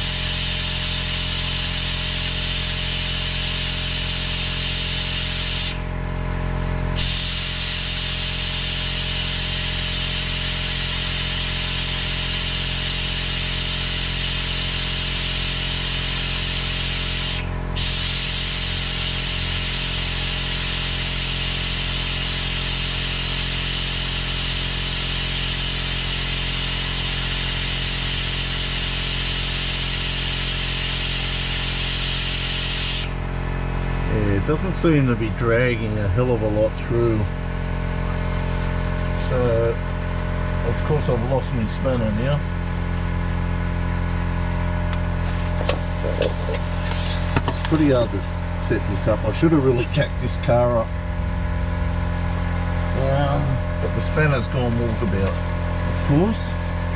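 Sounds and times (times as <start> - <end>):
vacuum brake bleeder hissing: 0.0 - 5.9, 6.9 - 33.2, 44.5 - 56.9.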